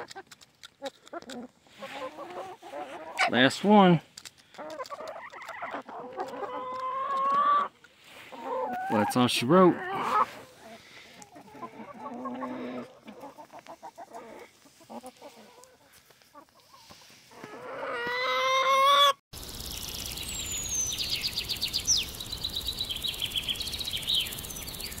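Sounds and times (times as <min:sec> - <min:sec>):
hens clucking softly: 0:00.0 - 0:03.9, 0:04.5 - 0:19.2
high chirps: 0:19.4 - 0:25.0.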